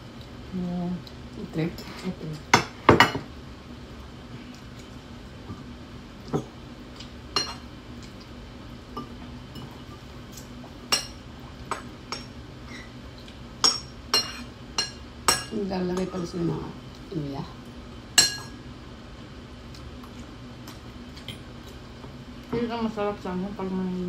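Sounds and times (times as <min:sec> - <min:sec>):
cutlery clinking on ceramic bowls: 0:07.4 - 0:07.6, 0:13.6 - 0:16.3, 0:18.2 - 0:18.6.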